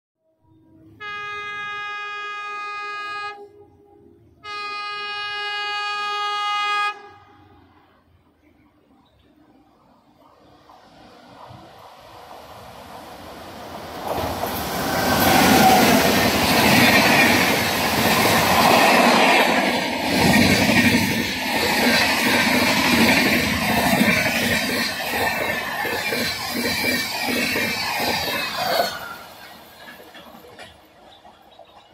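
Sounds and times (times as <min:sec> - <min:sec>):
train rushing past: 0:09.4 - 0:31.9
train wheels clickety-clack: 0:13.9 - 0:31.9.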